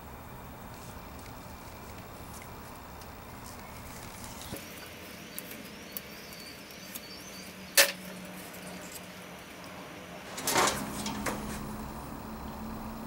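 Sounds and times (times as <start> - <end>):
clatter of metal parts: 10.3 - 11.4.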